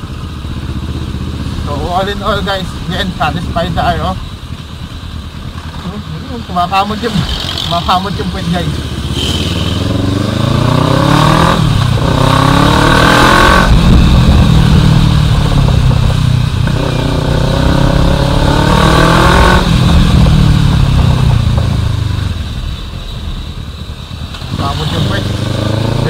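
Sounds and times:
motorcycle engine revving: 0:00.0 - 0:04.3, 0:06.8 - 0:22.6, 0:24.1 - 0:26.0
wind noise: 0:10.0 - 0:23.8.

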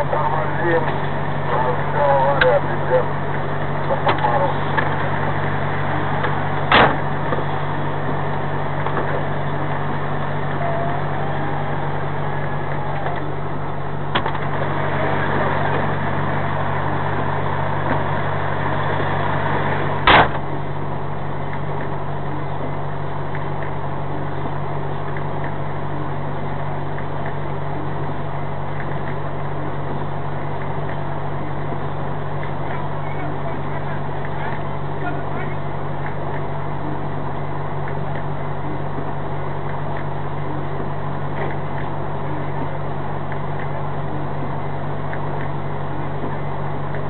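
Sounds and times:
diesel engine idling: 0:00.0 - 0:47.0.

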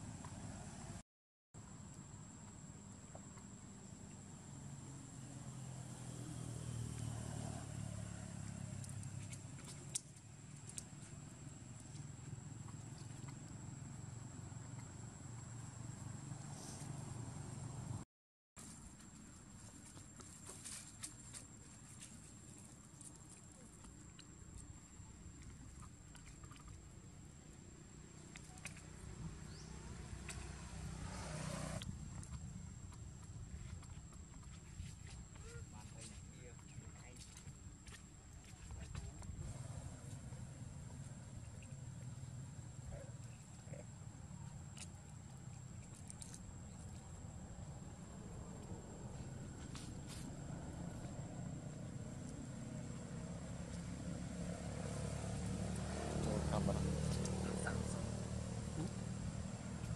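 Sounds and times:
passing vehicle engine rumble: 0:04.3 - 0:18.0, 0:27.9 - 0:33.9, 0:38.9 - 0:59.9.

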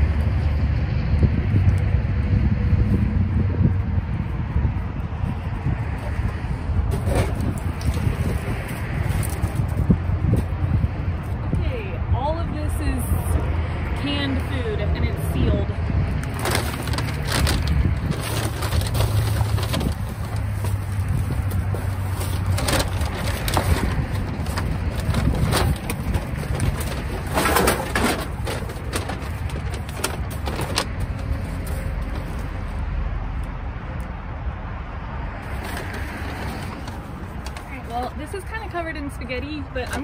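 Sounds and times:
items clattering in dumpster: 0:06.9 - 0:08.1, 0:16.3 - 0:32.4.

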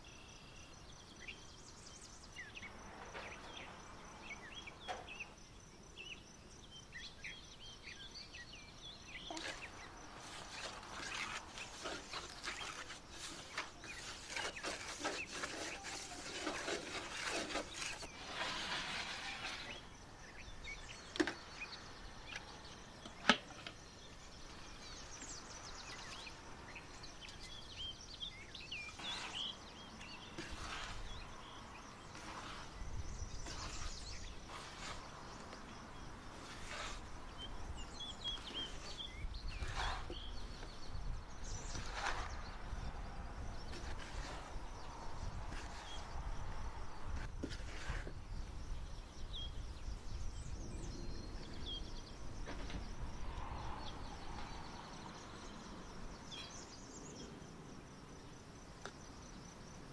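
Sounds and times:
birds chirping: 0:06.0 - 0:47.4
fingers rustling in dry flour: 0:09.3 - 0:19.8, 0:28.9 - 0:42.8, 0:43.5 - 0:46.8.

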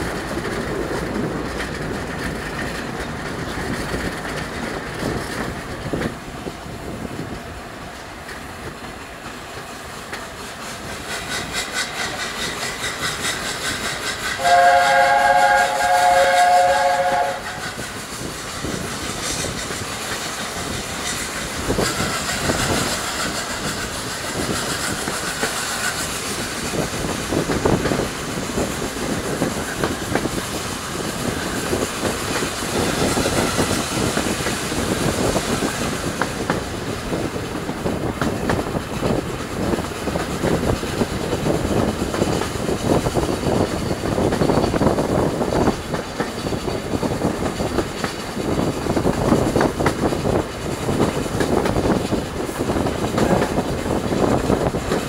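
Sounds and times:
train wheels clickety-clack on rails: 0:00.0 - 0:55.0
locomotive chime whistle: 0:14.4 - 0:17.8.

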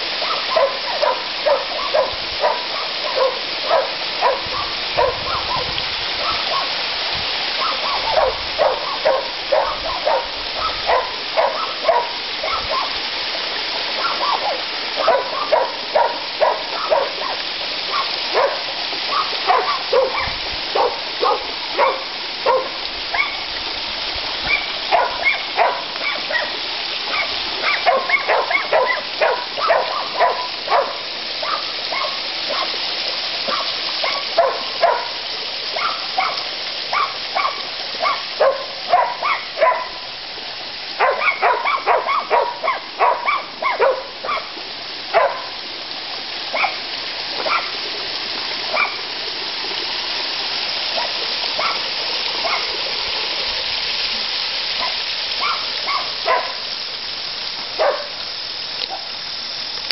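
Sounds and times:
waterfall splashing into a pond: 0:00.0 - 0:59.9
dog barking: 0:00.2 - 0:06.8, 0:07.6 - 0:13.0, 0:14.0 - 0:23.5, 0:24.4 - 0:32.8, 0:33.4 - 0:40.0, 0:41.0 - 0:44.5, 0:45.1 - 0:45.6, 0:46.5 - 0:46.8, 0:47.4 - 0:47.8, 0:48.7 - 0:49.0, 0:51.0 - 0:51.8, 0:52.4 - 0:52.7, 0:54.8 - 0:56.6, 0:57.8 - 0:58.2.

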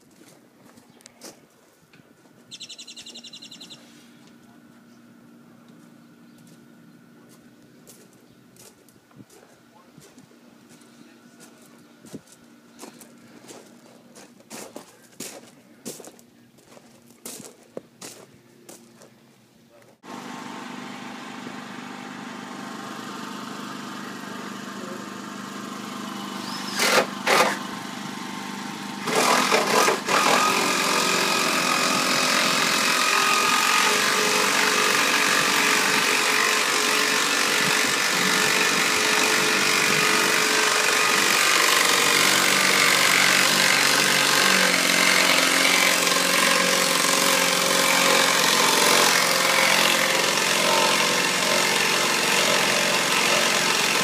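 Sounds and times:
engine running: 0:19.9 - 0:54.0.

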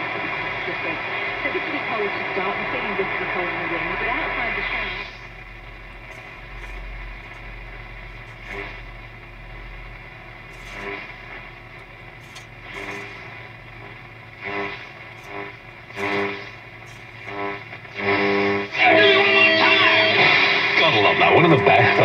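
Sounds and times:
mains hum: 0:00.0 - 0:22.0
radio static hiss and swishes: 0:00.0 - 0:22.0
radio station snatches: 0:03.3 - 0:08.9, 0:10.3 - 0:18.8.

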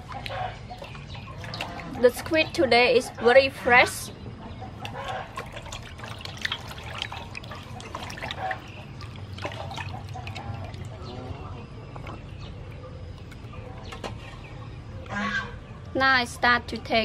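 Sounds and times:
water splashes and drips: 0:00.0 - 0:02.5, 0:04.7 - 0:14.2
hands sloshing in water: 0:04.7 - 0:12.3.

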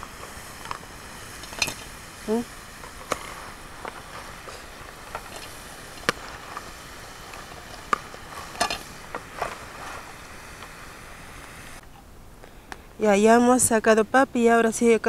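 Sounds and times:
potatoes sizzling in hot oil: 0:00.0 - 0:11.8.

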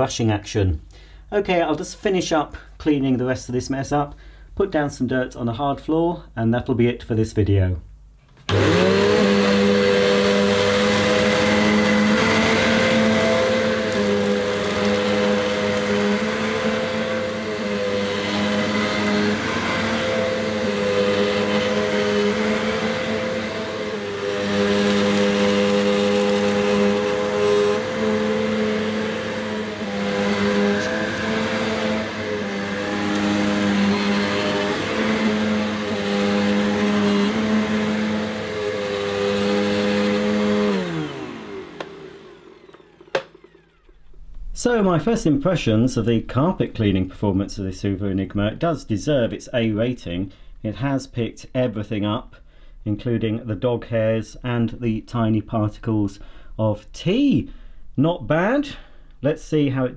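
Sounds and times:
vacuum cleaner running: 0:08.5 - 0:44.9.

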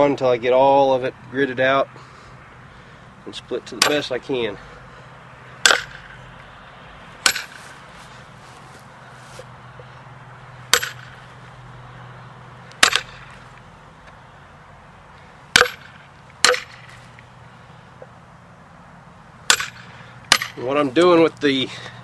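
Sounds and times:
hatchet chopping into log: 0:03.8 - 0:04.1, 0:05.6 - 0:06.2, 0:07.2 - 0:07.8, 0:10.7 - 0:11.2, 0:12.8 - 0:13.4, 0:15.5 - 0:17.0, 0:19.5 - 0:20.6.

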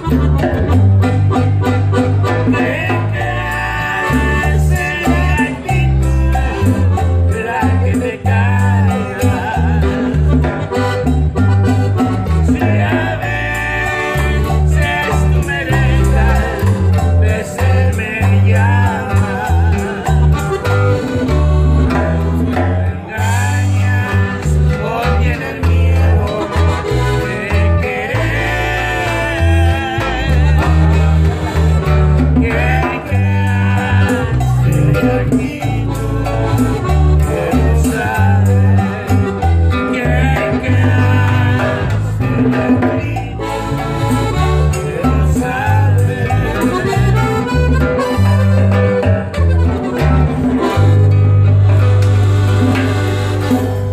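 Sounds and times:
acoustic guitar: 0:00.0 - 0:53.9
piano accordion: 0:00.0 - 0:53.9
man singing: 0:02.4 - 0:10.5, 0:12.4 - 0:21.1, 0:22.8 - 0:31.4, 0:32.2 - 0:48.3.

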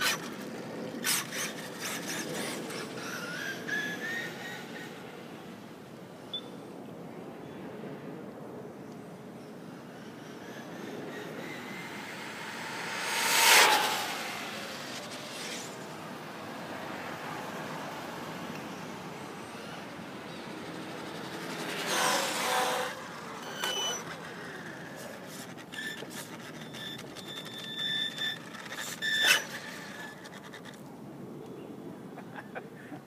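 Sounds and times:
rc truck motor whine: 0:00.0 - 0:05.1, 0:09.9 - 0:16.0, 0:18.7 - 0:30.8
motor and tyre rush: 0:00.0 - 0:06.2, 0:07.1 - 0:31.4
street traffic hum: 0:00.0 - 0:33.0.

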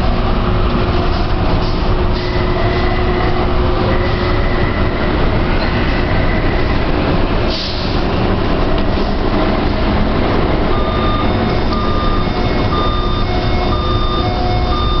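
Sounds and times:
train and station noise: 0:00.0 - 0:15.0
door warning beeps: 0:02.2 - 0:06.8, 0:10.7 - 0:15.0.

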